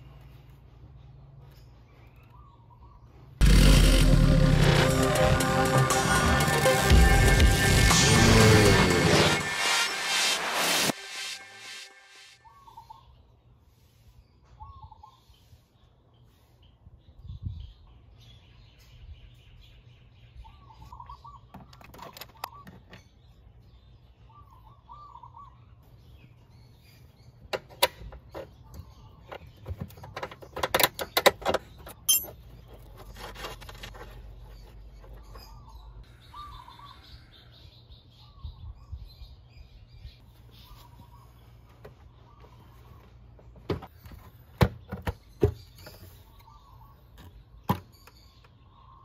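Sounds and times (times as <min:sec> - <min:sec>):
small birds chirping: 0:00.0 - 0:03.4, 0:12.4 - 0:49.0.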